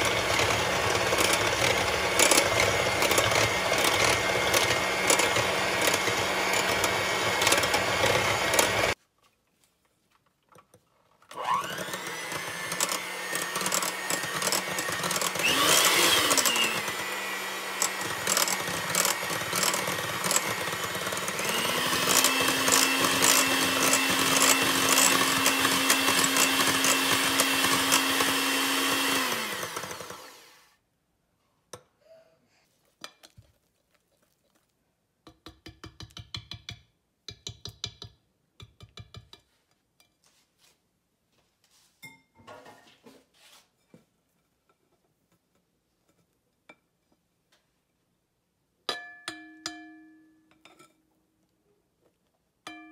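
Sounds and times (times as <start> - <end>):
electric hand mixer whirring: 0.0 - 9.0, 11.3 - 30.7.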